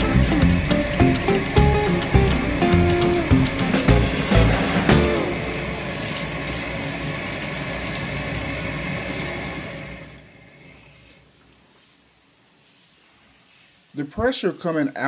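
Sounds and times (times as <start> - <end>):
water running from tub faucet: 0.0 - 10.6.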